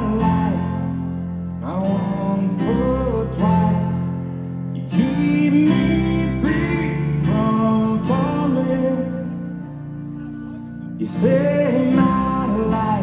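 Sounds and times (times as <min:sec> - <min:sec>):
live rock band playing: 0:04.8 - 0:13.0.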